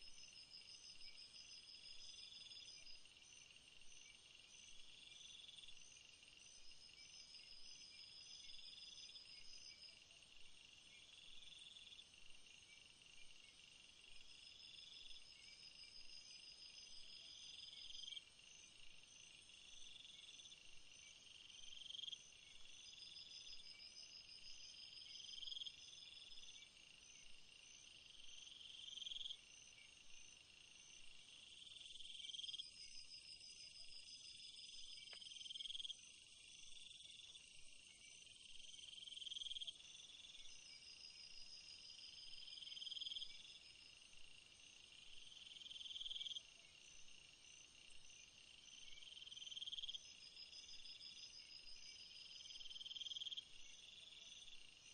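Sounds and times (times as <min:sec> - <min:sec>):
fast pulsed insect chirping: 0:12.6 - 0:54.9
insects trilling: 0:38.0 - 0:54.9.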